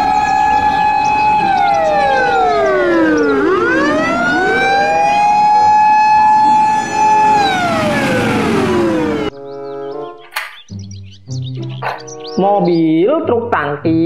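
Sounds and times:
fire engine siren wailing: 0.0s - 9.3s
second siren tone: 0.0s - 9.3s.

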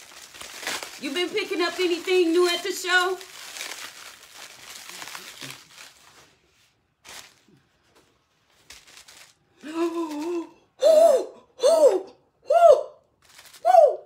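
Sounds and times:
paper and bubble wrap crumpling: 0.0s - 10.5s, 13.2s - 13.8s
woman humming: 9.6s - 10.6s.

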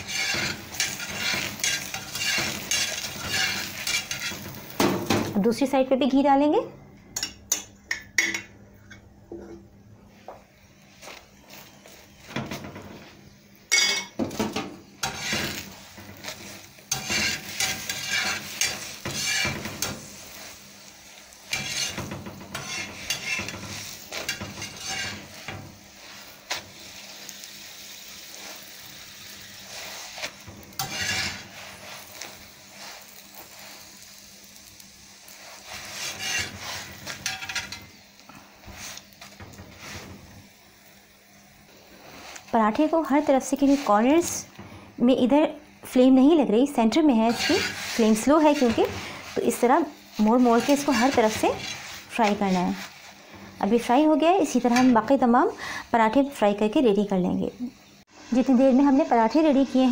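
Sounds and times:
spoon spreading ghee: 0.0s - 4.4s, 47.3s - 49.6s
metal spatula scraping griddle: 0.0s - 5.2s, 11.0s - 34.0s, 34.6s - 40.5s, 41.8s - 44.9s, 46.9s - 55.2s
flatbread sizzling on a griddle: 0.0s - 5.6s, 10.1s - 59.9s.

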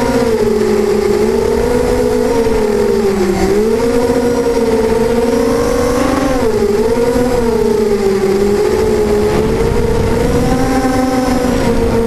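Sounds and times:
quadcopter motors whining: 0.0s - 12.0s
rushing noise: 8.6s - 12.0s.

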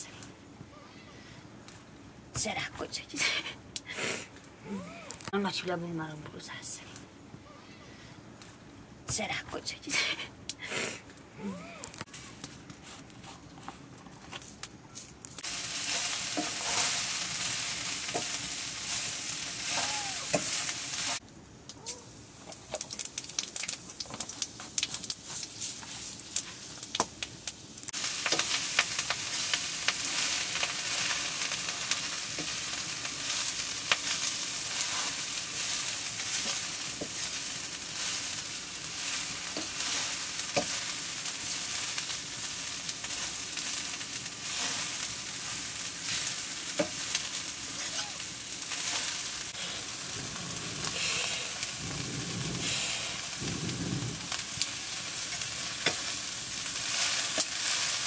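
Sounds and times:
hot oil sizzling in a wok: 15.4s - 21.2s, 22.2s - 58.0s.

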